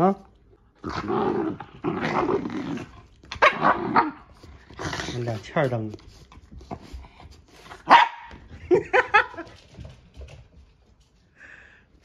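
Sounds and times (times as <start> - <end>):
dog yapping barks: 7.8 - 8.3
dog barking: 7.8 - 8.4.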